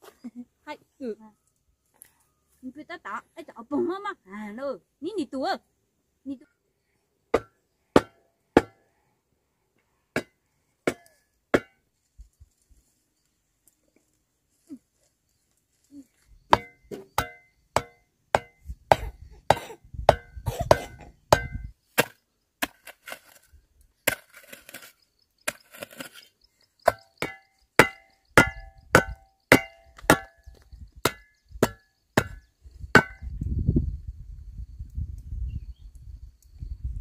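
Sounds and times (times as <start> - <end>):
hand tool striking wood: 7.3 - 8.8, 10.9 - 11.8, 16.5 - 23.2, 26.8 - 33.2.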